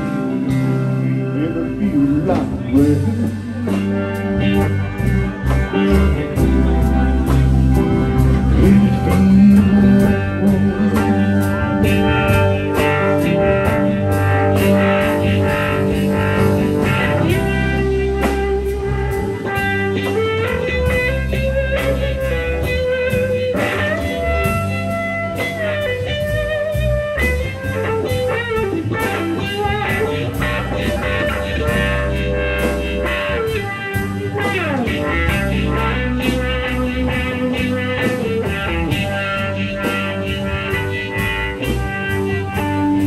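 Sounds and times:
bass guitar: 0:00.0 - 0:43.0
drums: 0:00.0 - 0:43.0
lead guitar bending notes: 0:00.0 - 0:43.0.

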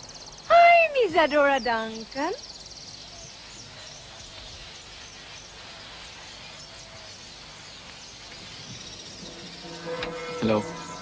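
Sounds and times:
birds chirping: 0:00.0 - 0:11.0
steady background hiss: 0:00.0 - 0:11.0.

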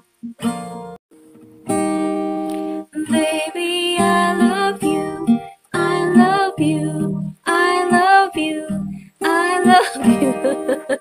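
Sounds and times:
acoustic guitar strumming: 0:00.0 - 0:11.0
woman singing: 0:02.9 - 0:11.0.

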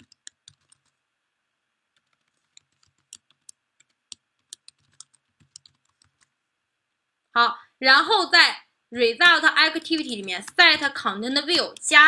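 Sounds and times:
typing on computer keyboard: 0:00.0 - 0:01.0, 0:01.9 - 0:06.3, 0:09.8 - 0:11.0.

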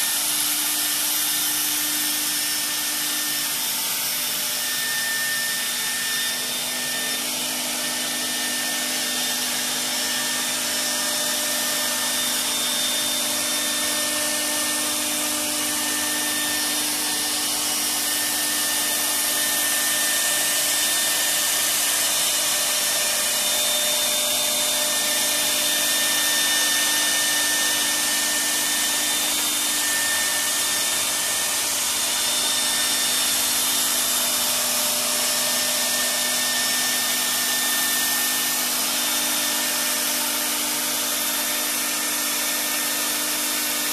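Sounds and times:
router spindle whine and hiss: 0:00.0 - 0:43.9.

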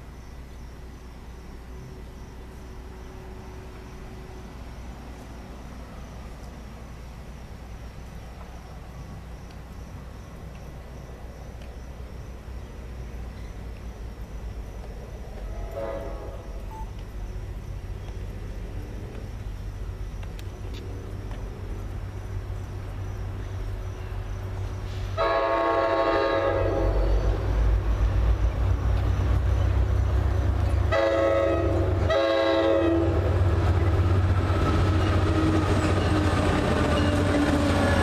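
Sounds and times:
diesel engine rumble: 0:00.0 - 0:25.2, 0:26.8 - 0:32.2
train chime horn blasts: 0:15.5 - 0:16.4, 0:25.2 - 0:27.2, 0:30.9 - 0:33.2.

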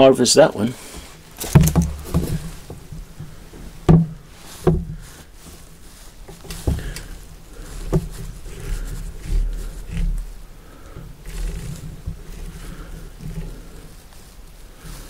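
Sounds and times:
dull knocks of rifle on wood: 0:01.4 - 0:02.8, 0:03.9 - 0:05.0.

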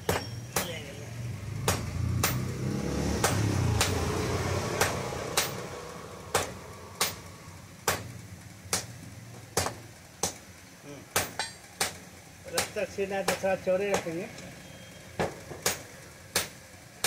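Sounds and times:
hammer striking iron on anvil: 0:00.0 - 0:00.8, 0:01.6 - 0:02.5, 0:04.8 - 0:05.7, 0:06.3 - 0:08.1, 0:11.1 - 0:14.2, 0:15.2 - 0:16.6.

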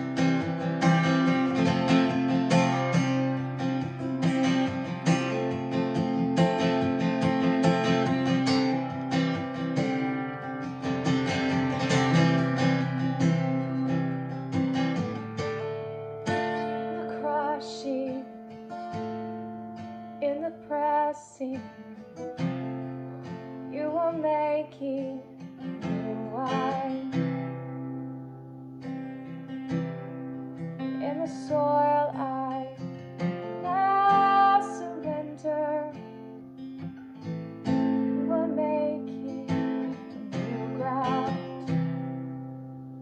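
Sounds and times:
acoustic guitar strumming: 0:00.0 - 0:43.0
woman singing: 0:01.0 - 0:04.1, 0:16.4 - 0:18.6, 0:20.1 - 0:22.5, 0:23.2 - 0:27.6, 0:30.8 - 0:36.5, 0:37.6 - 0:42.4.

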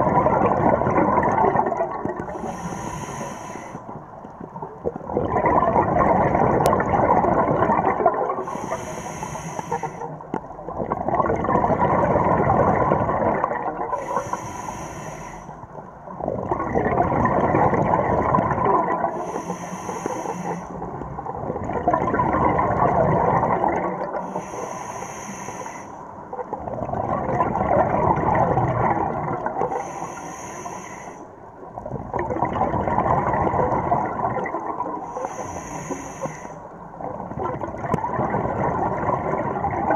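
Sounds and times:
bubbling exhale: 0:00.0 - 0:04.0, 0:04.8 - 0:31.3, 0:32.2 - 0:39.9
regulator inhale hiss: 0:02.2 - 0:03.9, 0:08.4 - 0:10.2, 0:13.9 - 0:15.8, 0:19.1 - 0:20.9, 0:24.2 - 0:26.2, 0:29.7 - 0:31.4, 0:35.0 - 0:36.8.

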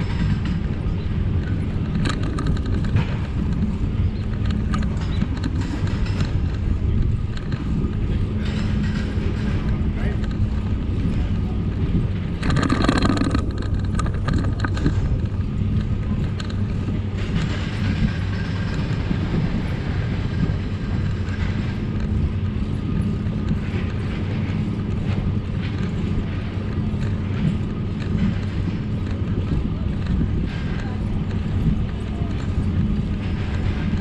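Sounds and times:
bicycle tyres rumbling: 0:00.0 - 0:34.0
bike rattling: 0:00.0 - 0:34.0.

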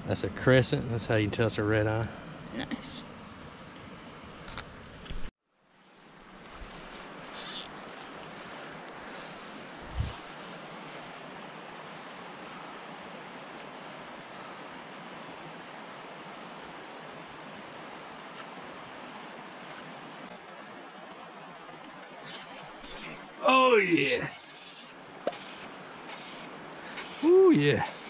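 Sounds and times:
insect trill: 0:00.0 - 0:05.2, 0:05.8 - 0:28.0
river flowing: 0:05.5 - 0:28.0.

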